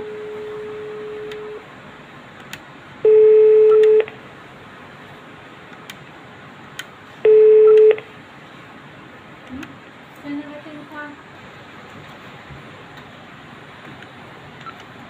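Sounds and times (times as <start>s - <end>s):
telephone beeps: 0.0s - 1.6s, 3.0s - 4.1s, 7.2s - 8.0s.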